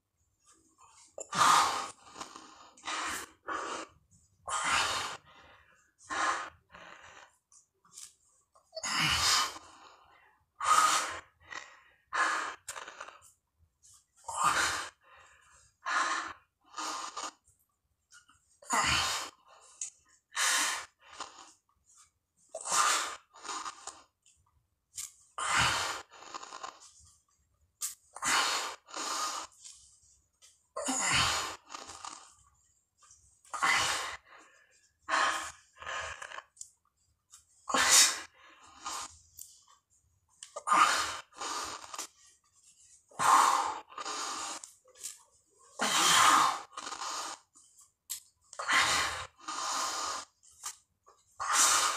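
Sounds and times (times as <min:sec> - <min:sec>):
man breathing heavily: 0:33.5 - 0:36.4.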